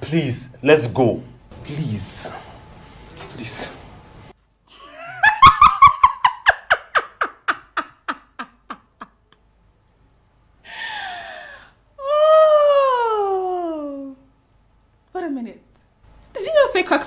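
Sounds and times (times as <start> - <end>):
woman laughing loudly: 4.7 - 9.4
breathy sound: 10.6 - 11.8.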